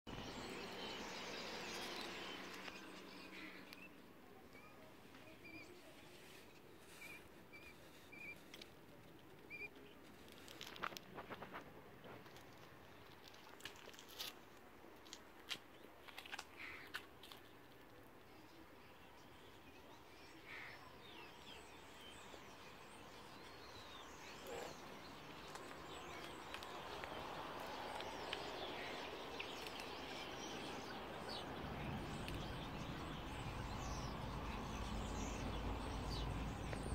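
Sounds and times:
quail chick peeping: 0:01.4 - 0:12.4, 0:19.5 - 0:36.9.

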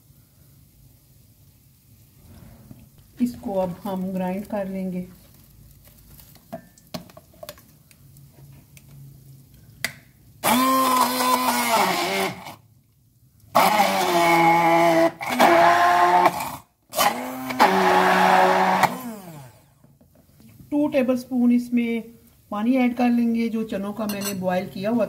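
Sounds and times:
hand blender motor whining: 0:10.4 - 0:12.6, 0:13.5 - 0:19.8.

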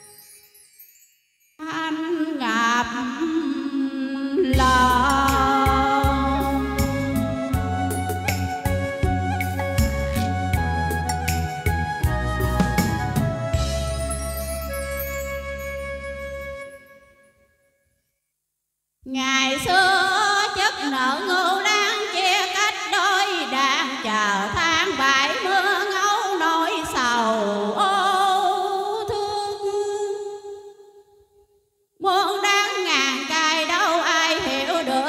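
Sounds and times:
woman singing with vibrato: 0:01.6 - 0:08.0, 0:19.1 - 0:30.9, 0:32.0 - 0:35.0
instrumental backing track: 0:04.6 - 0:17.2.

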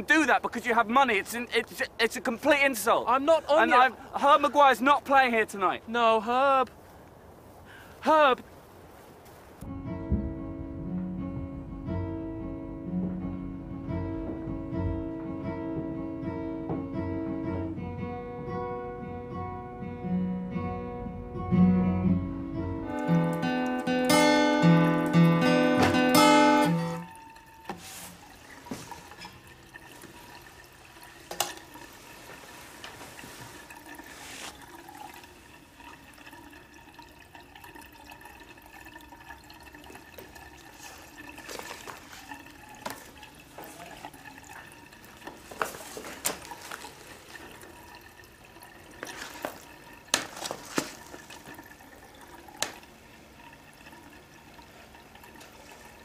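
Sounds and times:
papers rustling: 0:45.3 - 0:47.6, 0:49.0 - 0:51.7.

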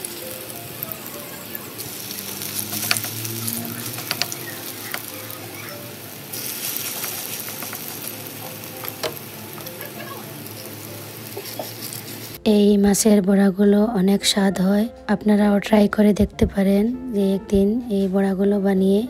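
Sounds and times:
batter sizzling in hot oil: 0:00.0 - 0:12.4.

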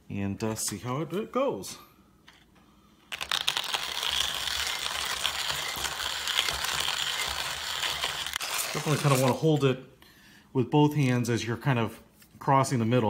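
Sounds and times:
coffee grinder crunching beans: 0:03.1 - 0:09.6.

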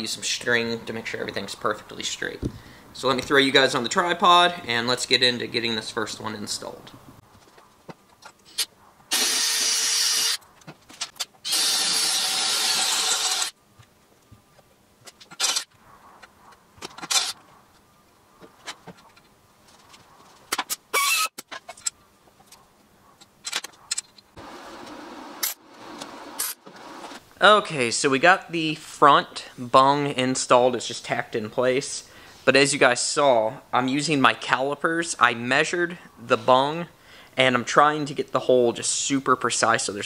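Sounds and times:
cordless drill drilling steel: 0:09.1 - 0:10.4, 0:11.4 - 0:13.6.

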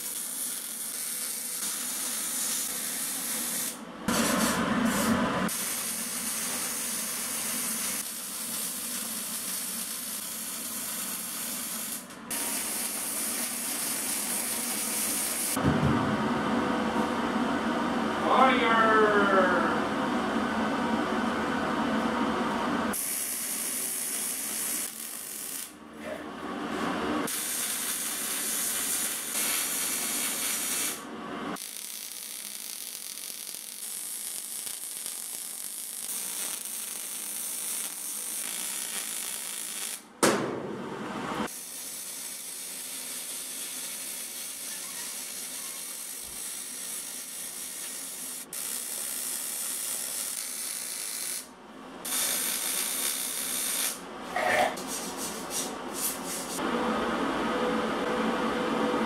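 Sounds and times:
welding arc on sheet metal: 0:00.0 - 0:15.6, 0:23.0 - 0:25.8, 0:27.3 - 0:31.0, 0:31.6 - 0:40.1, 0:41.5 - 0:54.0.

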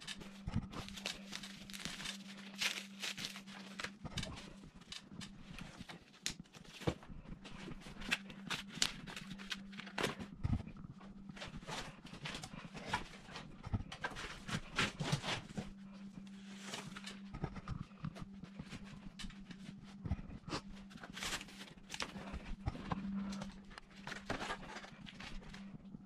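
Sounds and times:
steady low hum: 0:00.0 - 0:26.0
foam wrap rustling: 0:00.7 - 0:04.0.

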